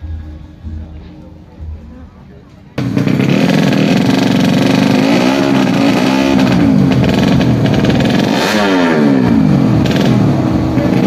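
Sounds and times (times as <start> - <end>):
motorbike engine revving: 2.8 - 11.0.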